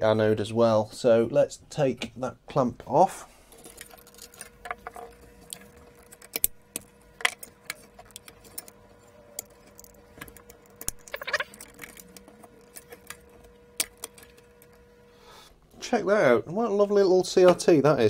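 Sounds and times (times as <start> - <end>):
faint steady hum: 0.0 - 18.0
metal tools clinking: 3.5 - 6.5, 9.4 - 14.8.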